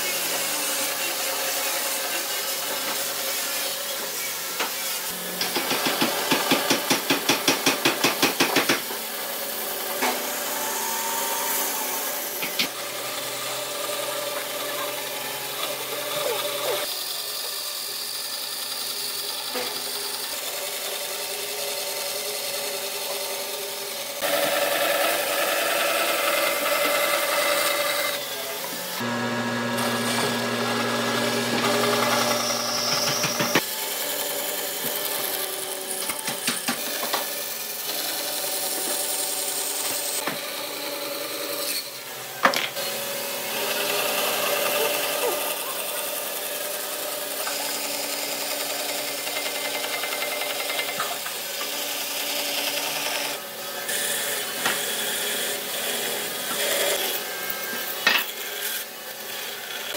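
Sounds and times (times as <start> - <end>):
band saw motor hum: 9.0 - 36.0
saw blade rasping through wood: 42.9 - 59.9.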